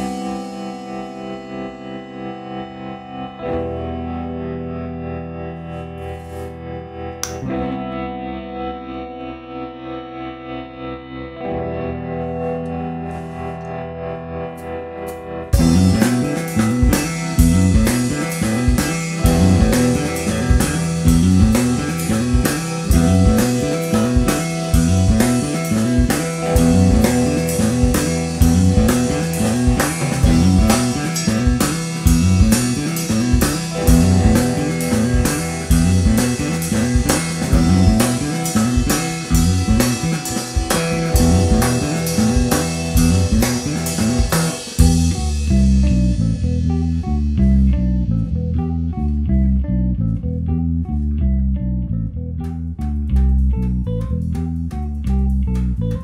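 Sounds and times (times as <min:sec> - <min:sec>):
electric bass line: 0:00.0 - 0:56.0
electric guitar: 0:00.0 - 0:56.0
drum kit beat: 0:14.6 - 0:46.1.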